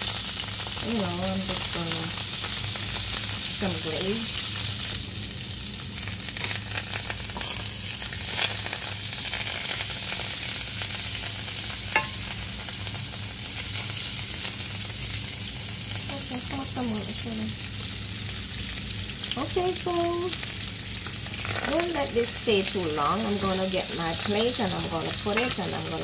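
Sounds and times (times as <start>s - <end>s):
fish sizzling in butter: 0.0s - 26.0s
fork moving in pan: 7.2s - 10.2s, 11.2s - 12.8s
metal clink on pan: 11.9s - 12.4s.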